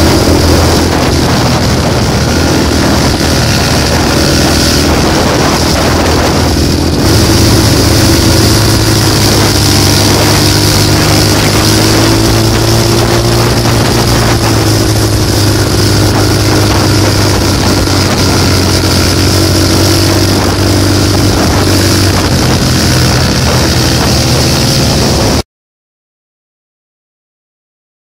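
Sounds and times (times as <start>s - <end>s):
road and wind noise: 0.0s - 25.4s
vehicle engine humming: 0.0s - 25.4s.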